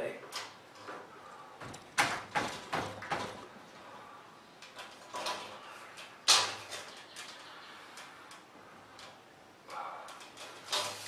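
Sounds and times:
scrapes and knocks of handling: 10.2s - 11.0s.

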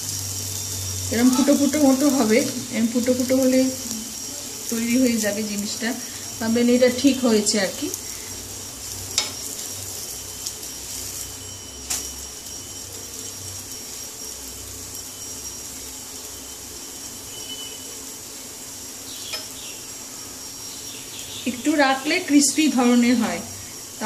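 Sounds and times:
batter sizzling on a hot pan: 0.0s - 24.0s
steel spatula tapping a pan: 9.1s - 9.7s, 19.3s - 19.6s.

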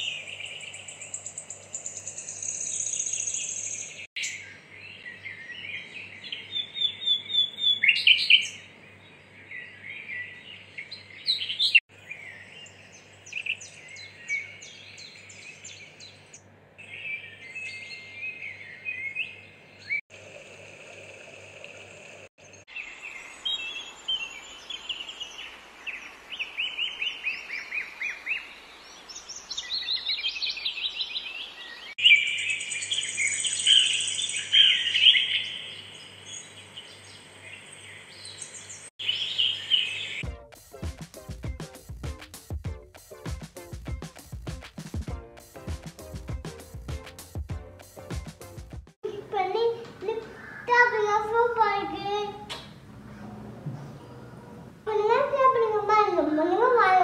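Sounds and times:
birds chirping and calling: 0.0s - 20.0s, 22.4s - 40.2s, 49.8s - 55.8s.

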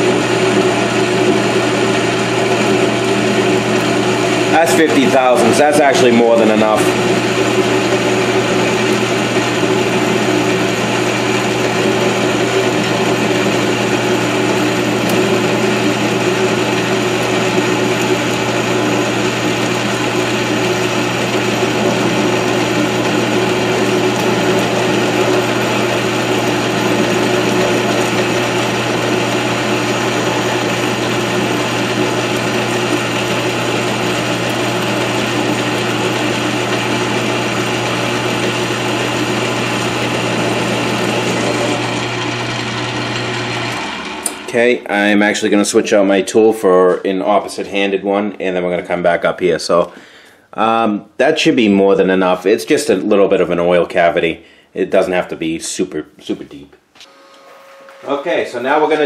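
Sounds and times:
metal lathe running: 0.0s - 46.2s.

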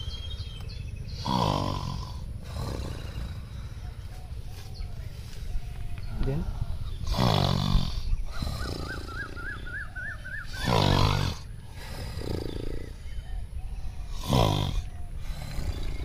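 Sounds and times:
tiger roar: 1.0s - 3.9s, 7.0s - 9.8s, 10.4s - 13.3s, 14.0s - 16.0s.

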